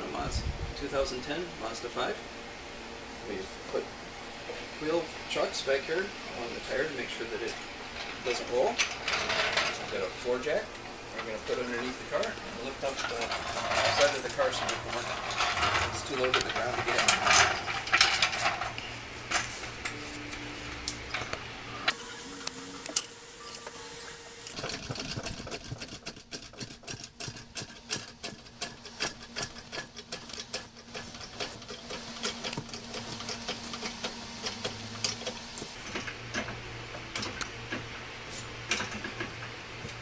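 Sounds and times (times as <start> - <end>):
floor jack pumping clacks: 24.5 - 32.7.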